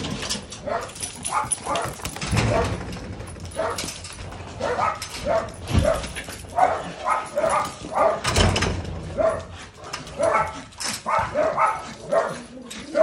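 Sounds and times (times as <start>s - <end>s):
dog barking: 0.6s - 2.8s, 3.5s - 3.9s, 4.6s - 8.4s, 9.1s - 13.0s.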